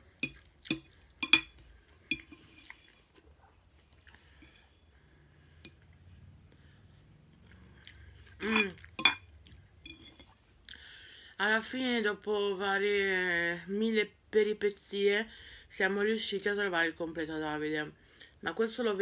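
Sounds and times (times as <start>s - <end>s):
chewing: 0.2s - 4.8s, 5.5s - 10.9s.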